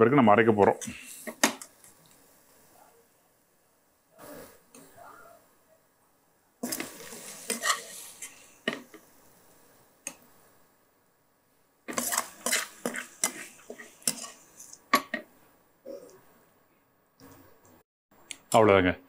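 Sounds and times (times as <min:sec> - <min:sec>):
metal spatula scraping a pan: 0:06.6 - 0:09.0, 0:11.9 - 0:15.2.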